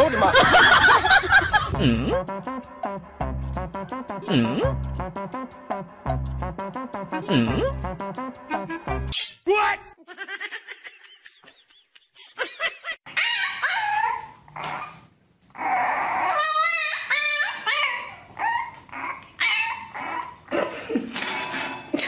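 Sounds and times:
puppy yelping and whining: 13.1 - 20.5.

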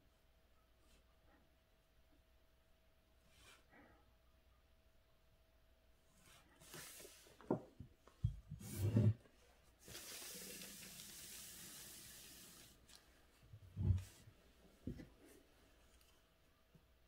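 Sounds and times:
paper sliding across a desk: 6.2 - 7.6, 8.6 - 9.2, 9.8 - 13.0.

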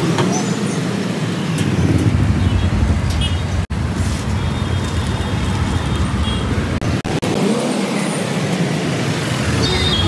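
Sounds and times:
roadside traffic noise: 0.0 - 10.0.

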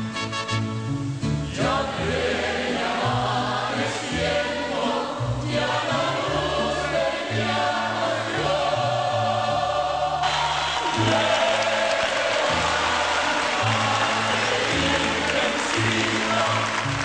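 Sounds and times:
instrumental backing with bass line: 0.0 - 2.5
choir singing a hymn: 1.5 - 17.0.

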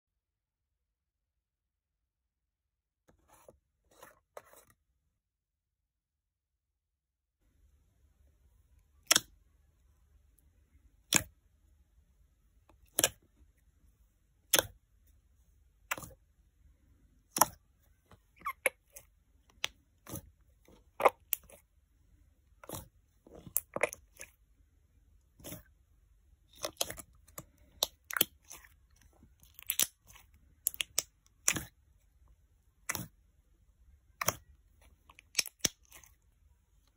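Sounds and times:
slime clicking and popping: 29.4 - 31.7, 35.1 - 36.0.

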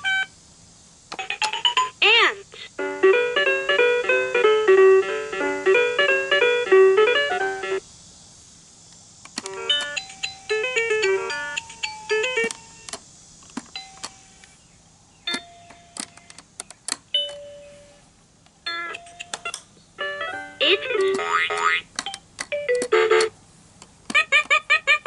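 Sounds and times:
toy chiming tune: 9.7 - 12.8, 13.8 - 14.4, 18.7 - 20.9.

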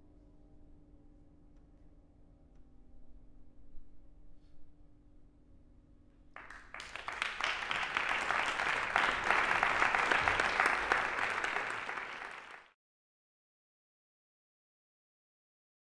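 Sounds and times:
audience applauding: 6.4 - 12.8.

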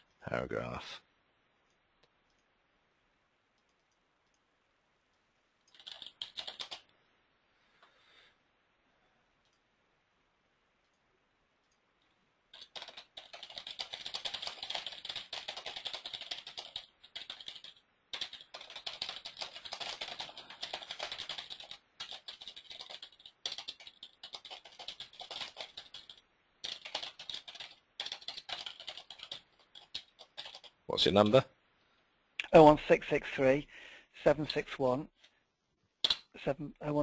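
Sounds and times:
computer keyboard typing: 5.6 - 6.9, 12.5 - 30.8.

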